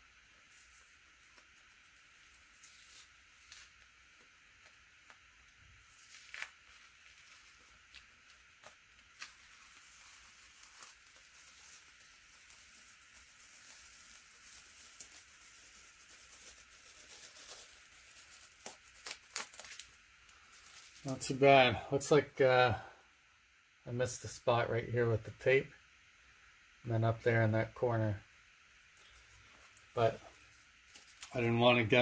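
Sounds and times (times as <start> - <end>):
tape peeling off leather: 0.5 - 21.2, 29.7 - 31.4.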